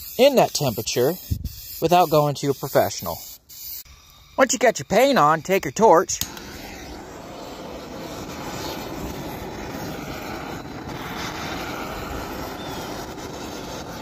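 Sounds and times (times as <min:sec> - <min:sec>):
gas torch burning: 0:03.8 - 0:14.0.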